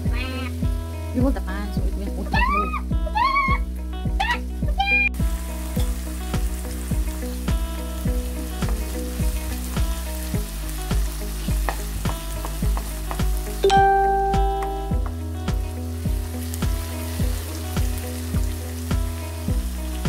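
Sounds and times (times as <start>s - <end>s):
background music with steady beat: 0.0s - 20.0s
onions sizzling in oil: 5.2s - 20.0s.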